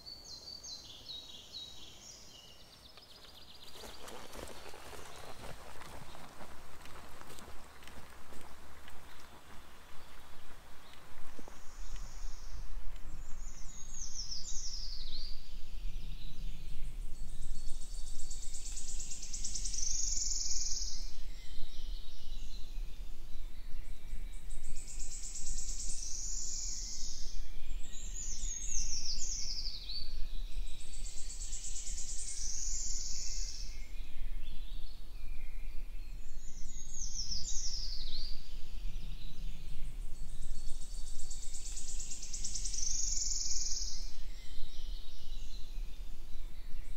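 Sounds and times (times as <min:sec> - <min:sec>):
songbirds singing: 0:00.0 - 0:46.9.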